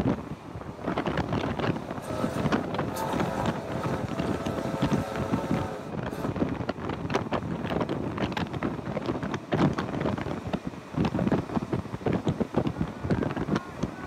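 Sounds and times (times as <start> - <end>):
train running noise: 0.0 - 14.0
wind buffeting microphone: 0.0 - 14.0.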